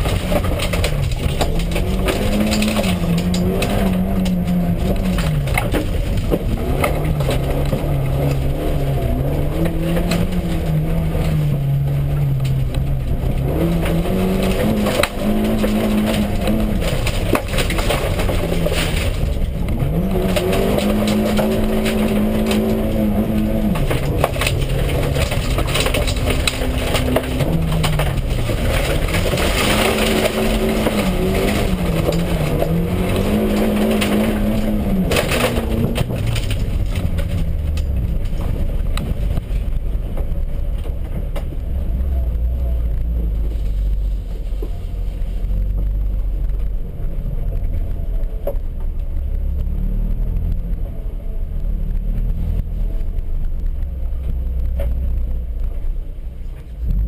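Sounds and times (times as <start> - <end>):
car engine revving: 0.0 - 57.0
gravel clattering against car: 0.0 - 57.0.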